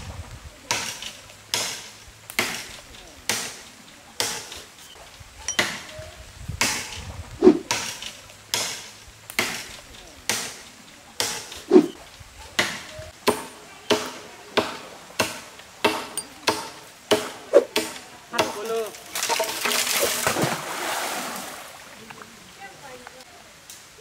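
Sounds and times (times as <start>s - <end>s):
blade chopping wood: 0.7s - 3.6s, 7.5s - 10.6s.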